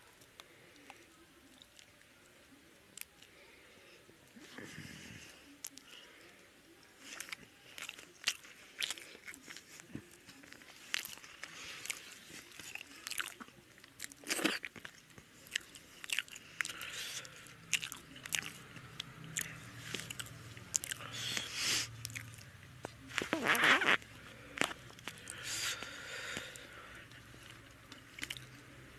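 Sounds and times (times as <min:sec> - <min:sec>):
person chewing crunchy food: 0:07.0 - 0:28.6.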